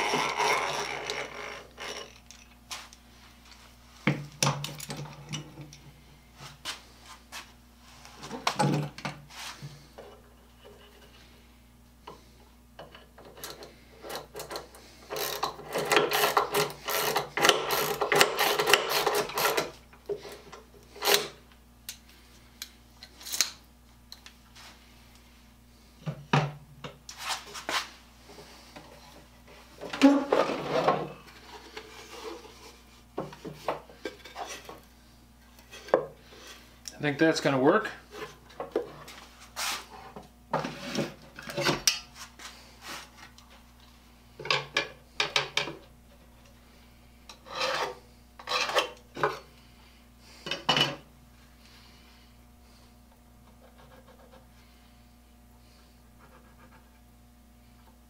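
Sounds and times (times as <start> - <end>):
knocks and clatter on workbench: 26.0 - 27.0.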